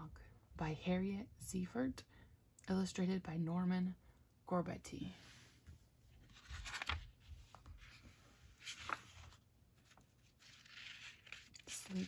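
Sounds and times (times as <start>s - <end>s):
book pages turning: 6.2s - 12.0s.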